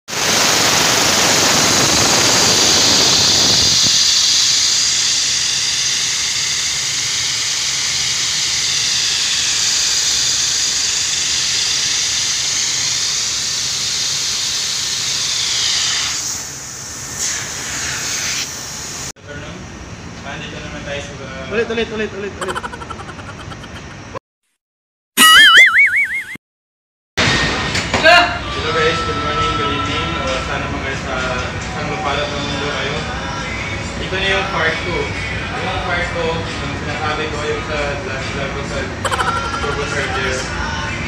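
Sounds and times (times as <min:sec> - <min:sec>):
pressurised jet hissing: 0:00.1 - 0:07.5.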